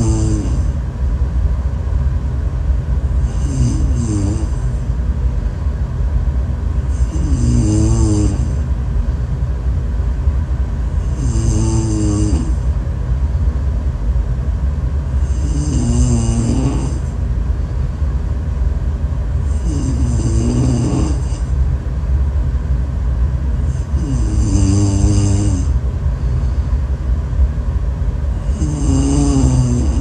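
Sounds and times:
woman snoring: 0.0 - 0.8, 3.2 - 4.8, 6.9 - 8.6, 11.0 - 12.6, 15.2 - 17.2, 19.5 - 21.5, 23.6 - 26.6, 28.3 - 30.0
steady low rumble: 0.0 - 30.0.

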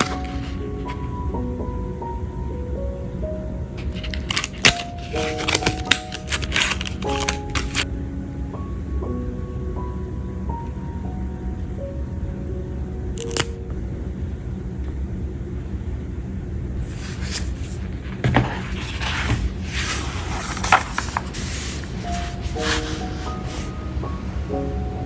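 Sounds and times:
paper rustling and sliding: 0.0 - 1.1, 3.9 - 7.9, 16.8 - 23.8
soft background music: 0.0 - 15.5, 16.8 - 25.0.

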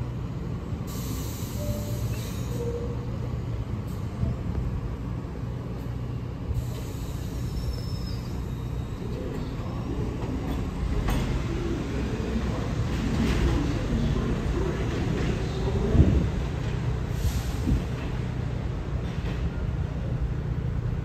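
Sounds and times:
subway train rumbling: 0.0 - 21.0
faint high squeal: 6.7 - 9.1.

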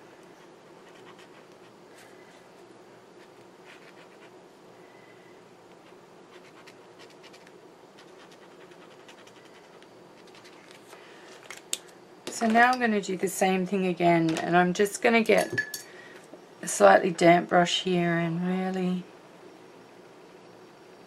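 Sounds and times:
marker scratching on paper: 3.2 - 4.3.

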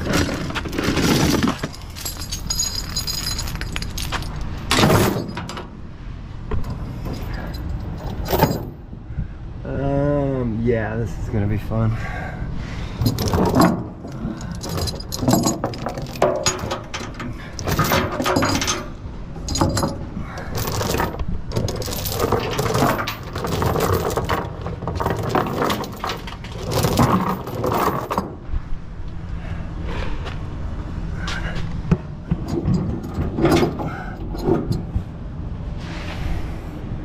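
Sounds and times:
metal chains rattling and clanking: 0.0 - 5.8, 6.6 - 8.8, 12.9 - 28.4, 32.3 - 34.9.

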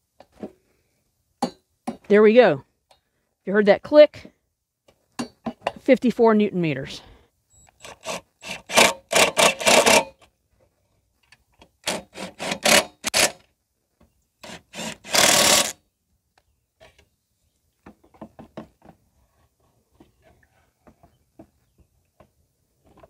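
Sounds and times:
cordless drill driving bolts: 7.7 - 10.2, 11.8 - 13.4, 14.4 - 15.8.

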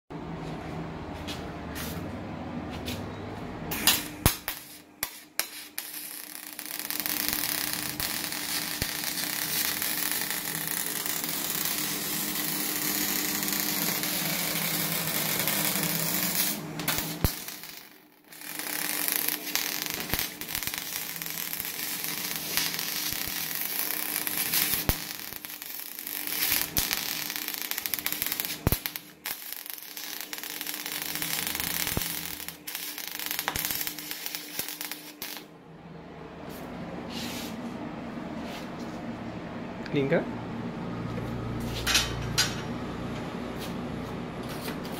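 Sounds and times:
welding arc hissing crackle: 3.7 - 35.5
welding arc pops: 3.7 - 35.5.

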